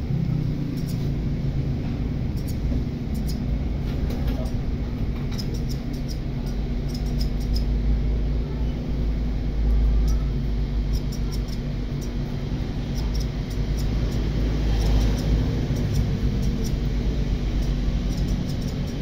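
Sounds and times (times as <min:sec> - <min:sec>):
electric hair clippers buzzing: 0:10.8 - 0:19.0.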